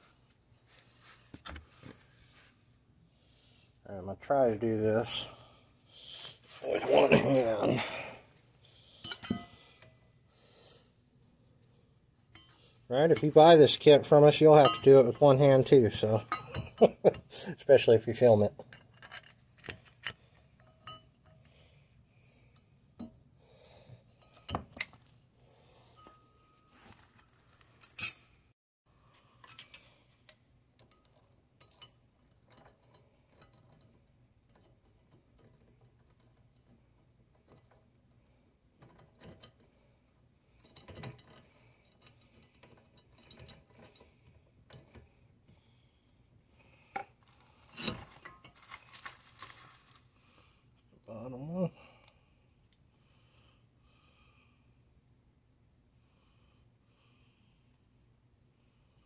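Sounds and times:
metal bolts and nuts clinking: 0:09.1 - 0:09.6, 0:12.4 - 0:16.9, 0:18.7 - 0:21.4, 0:24.2 - 0:25.2, 0:27.8 - 0:28.3, 0:29.4 - 0:37.8, 0:47.3 - 0:49.2.

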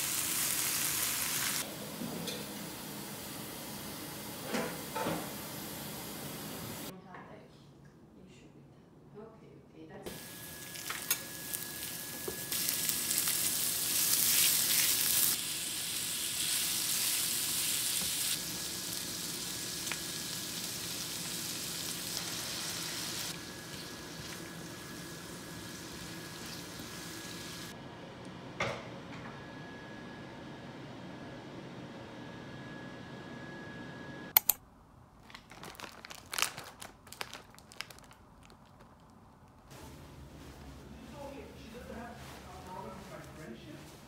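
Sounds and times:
food sizzling in a frying pan: 0:00.0 - 0:01.6, 0:10.1 - 0:27.8.

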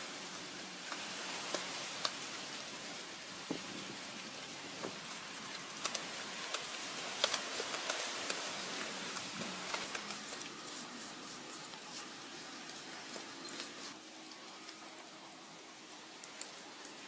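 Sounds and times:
steady high-pitched whine: 0:00.0 - 0:17.0.

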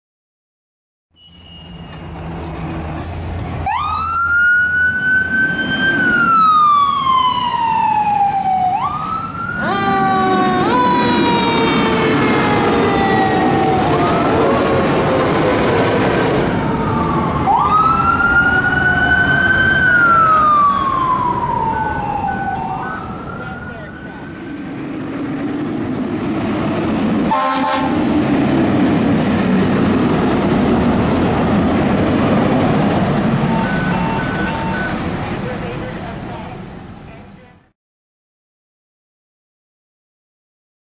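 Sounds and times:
fire engine siren wailing: 0:03.6 - 0:36.1
fast siren pattern: 0:03.7 - 0:15.5, 0:16.5 - 0:24.8, 0:33.3 - 0:35.1
diesel engine humming: 0:18.8 - 0:37.6.

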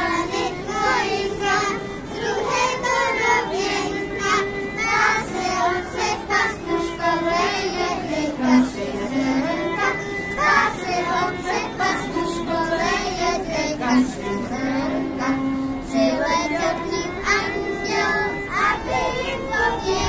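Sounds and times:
girls singing folk song: 0:00.0 - 0:20.0
musical accompaniment: 0:00.0 - 0:20.0.

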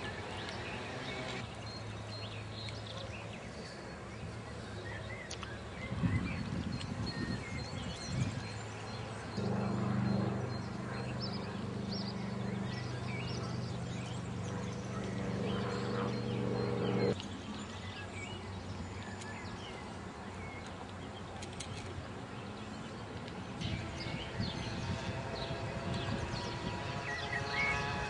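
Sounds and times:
birds chirping: 0:00.0 - 0:28.0
low drone: 0:08.5 - 0:17.2, 0:23.6 - 0:28.0.

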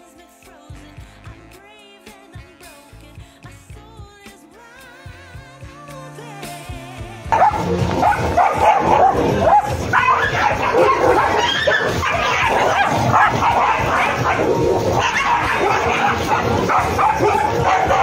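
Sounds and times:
dogs barking and yelping: 0:07.3 - 0:18.0.

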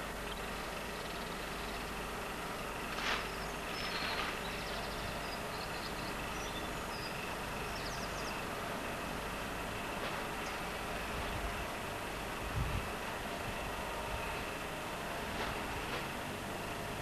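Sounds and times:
outdoor background noise: 0:00.0 - 0:17.0
faint high bird chirps: 0:03.1 - 0:08.5.

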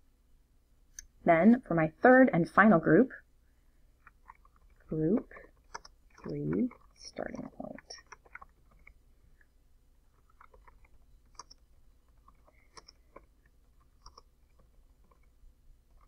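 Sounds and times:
faint keyboard typing: 0:04.0 - 0:16.0.

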